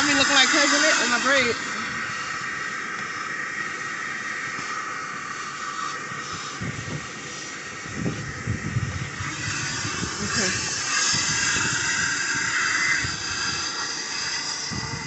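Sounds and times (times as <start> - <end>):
vacuum rushing hiss: 0.0 - 15.0.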